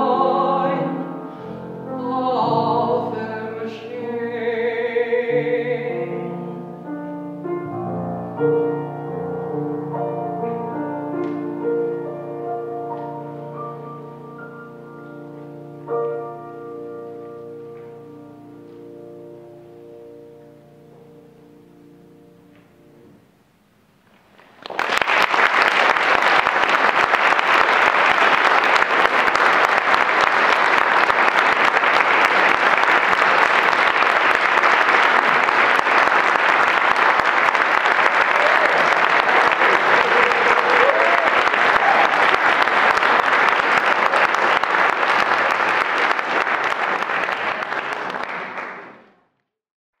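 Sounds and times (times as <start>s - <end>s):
audience applause: 24.4s - 49.2s.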